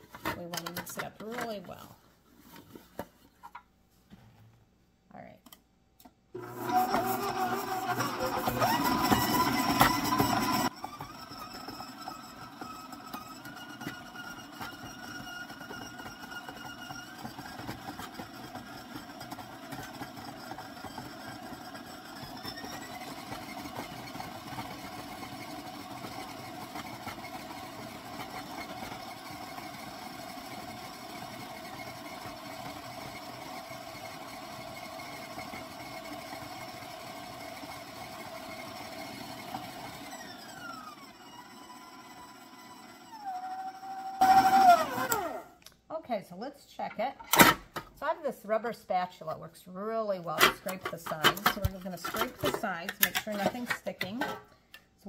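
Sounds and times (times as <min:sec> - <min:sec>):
stand mixer motor whine: 0:06.4 - 0:45.6.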